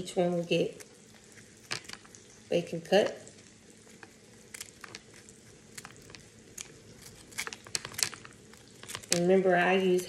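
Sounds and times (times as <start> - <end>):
kitchen shears snipping crispy bacon: 3.8 - 9.4.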